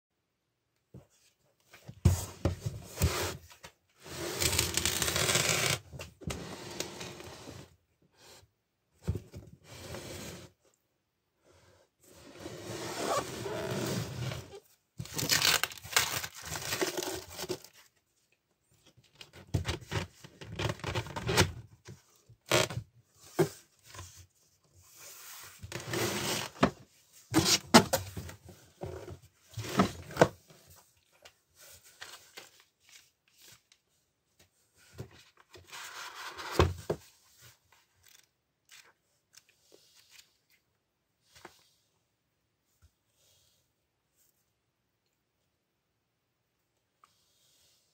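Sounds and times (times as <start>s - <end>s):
cardboard scraping and tearing: 4.0s - 5.8s.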